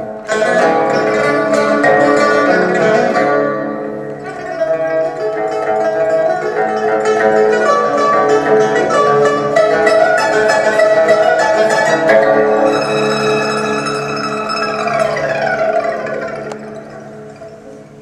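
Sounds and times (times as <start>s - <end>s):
lutes playing rapid plucked notes: 0.0s - 18.0s.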